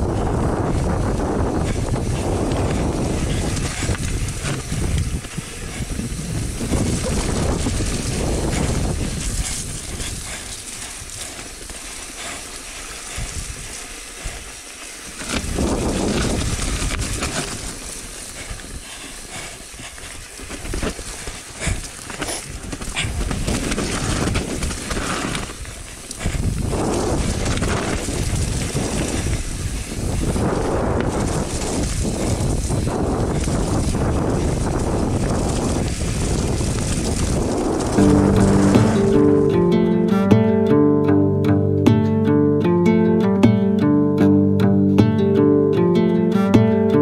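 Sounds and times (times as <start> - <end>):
bike rattling and clicking: 0.0 - 39.2
bike tyres rolling over leaves: 0.0 - 40.0
wind rumbling on microphone: 0.0 - 40.2.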